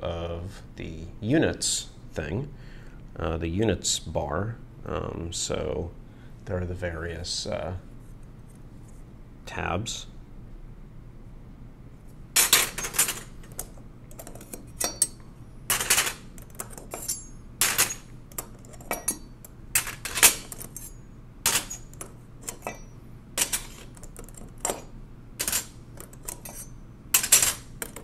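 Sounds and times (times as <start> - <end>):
steel bars clinking together: 14.3 - 23.9, 24.6 - 28.0.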